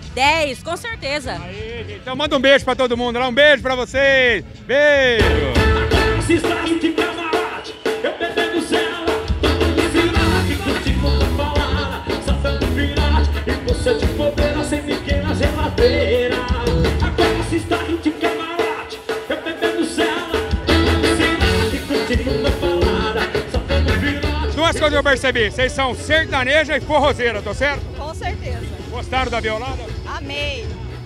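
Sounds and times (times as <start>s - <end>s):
drums keeping steady beat: 0.0s - 1.9s, 2.6s - 31.0s
electric bass: 0.0s - 2.2s, 3.1s - 6.8s, 9.1s - 18.0s, 20.4s - 31.0s
man singing: 5.2s - 25.2s.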